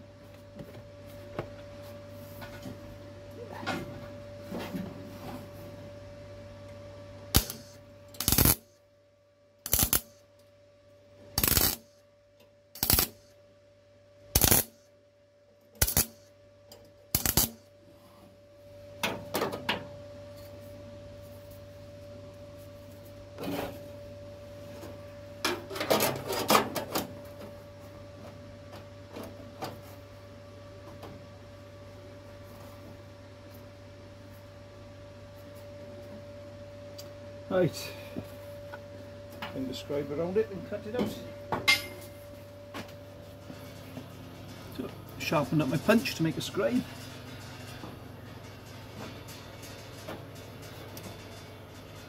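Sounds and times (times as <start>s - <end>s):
welder crackling bursts: 7.3s - 8.8s, 9.6s - 10.2s, 11.4s - 12.0s, 12.8s - 13.3s, 14.3s - 14.8s, 15.8s - 16.3s, 17.1s - 17.6s.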